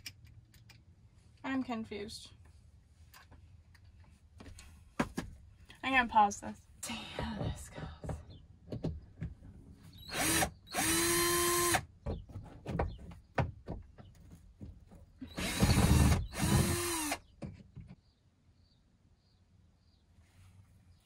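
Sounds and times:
cordless drill running: 0:10.0 - 0:11.9, 0:15.3 - 0:17.2.

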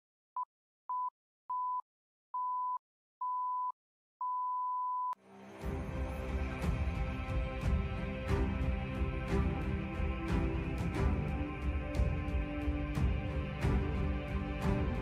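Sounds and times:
countdown beeps: 0:02.4 - 0:05.2
music: 0:05.2 - 0:15.0.

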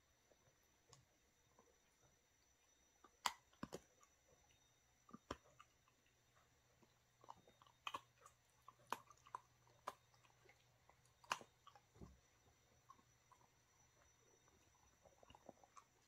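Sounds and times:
dog chewing jerky: 0:05.1 - 0:16.0.

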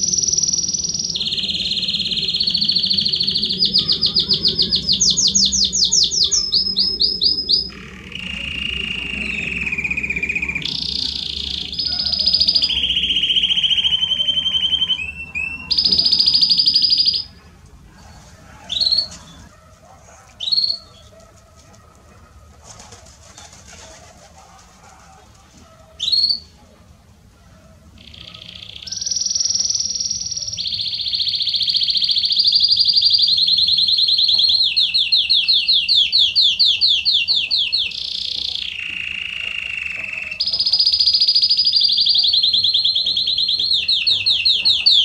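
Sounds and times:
canary singing trills: 0:00.0 - 0:21.5, 0:23.3 - 0:26.6, 0:27.9 - 0:45.0.

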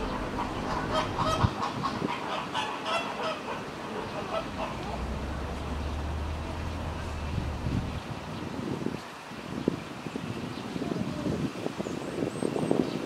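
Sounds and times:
birds honking: 0:00.0 - 0:08.0
low steady hum: 0:03.8 - 0:08.5.

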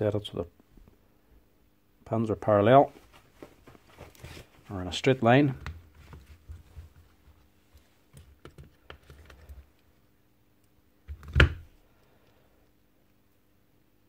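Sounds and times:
plastic parts clicking and tapping: 0:08.1 - 0:09.7.

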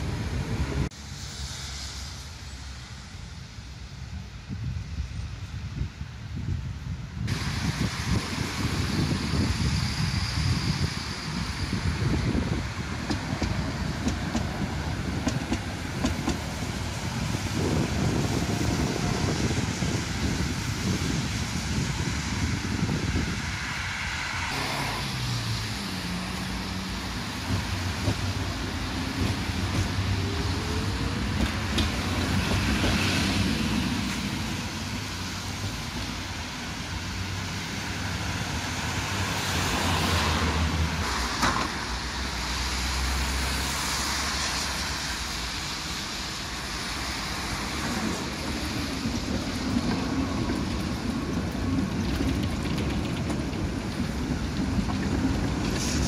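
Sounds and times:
vehicles passing: 0:11.6 - 0:56.0.

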